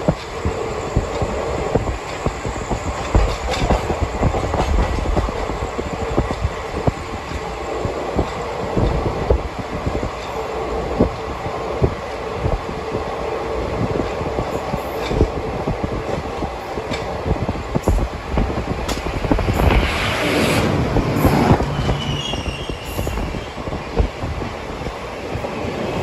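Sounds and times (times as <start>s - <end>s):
wheels clacking over rail joints: 0.0s - 9.4s
train coach rumble: 0.0s - 26.0s.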